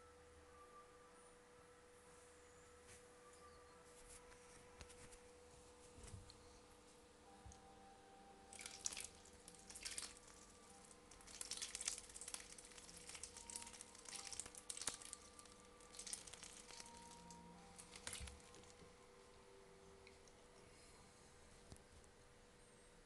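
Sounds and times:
duckling splashing in water: 0:08.6 - 0:10.2, 0:11.2 - 0:15.2.

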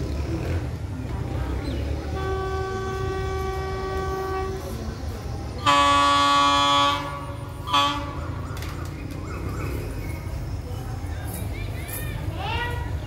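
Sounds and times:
train horn: 0:02.0 - 0:04.9, 0:05.6 - 0:08.4.

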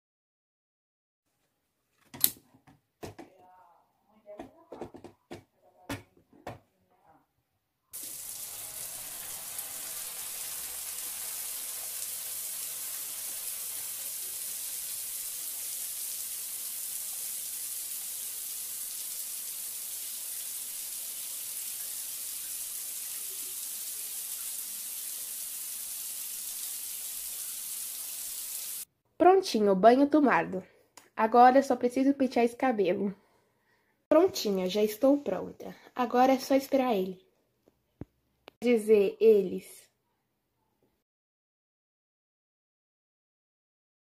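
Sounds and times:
shower water running: 0:08.0 - 0:28.9.

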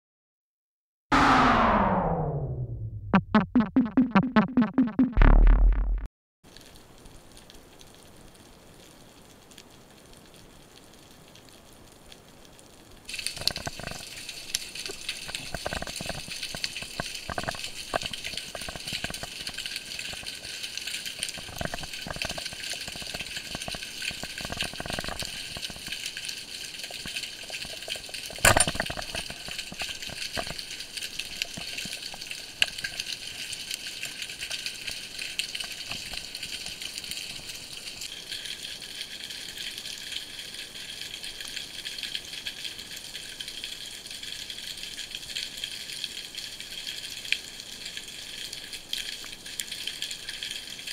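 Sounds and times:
underwater crackling and clicking: 0:03.1 - 0:11.6, 0:13.1 - 0:50.9.

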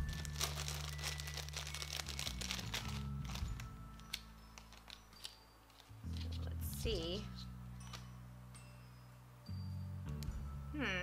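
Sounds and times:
packaging crinkling: 0:00.0 - 0:06.4
quiet background music: 0:00.0 - 0:11.0.

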